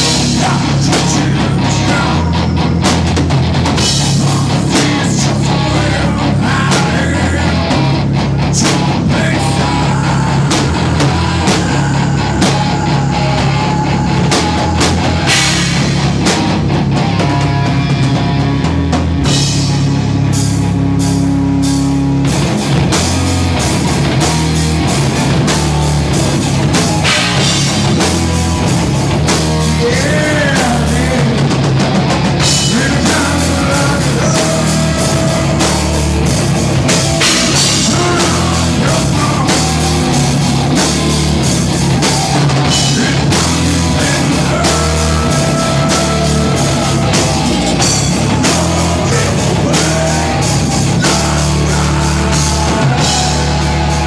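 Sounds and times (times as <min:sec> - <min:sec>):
drum kit: 0:00.0 - 0:54.0
electric guitar: 0:00.0 - 0:54.0
live heavy rock band: 0:00.0 - 0:54.0.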